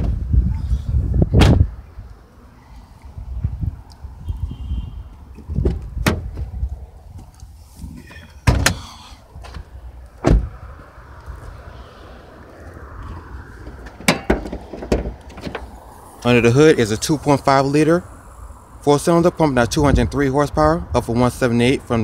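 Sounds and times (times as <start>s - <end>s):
car doors shutting: 5.4s - 6.6s, 7.8s - 10.6s, 13.6s - 15.8s.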